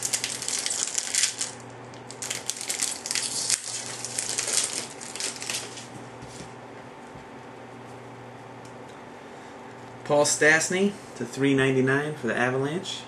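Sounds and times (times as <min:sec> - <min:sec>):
foil wrapper crinkling: 0:00.0 - 0:06.0.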